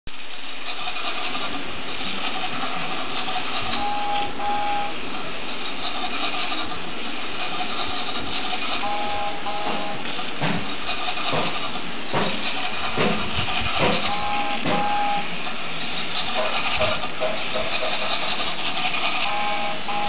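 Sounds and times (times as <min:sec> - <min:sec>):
toy train motor whirring: 0:00.1 - 0:20.0
short electronic beeps: 0:03.8 - 0:05.0, 0:08.8 - 0:10.1, 0:14.0 - 0:15.3, 0:19.2 - 0:20.0.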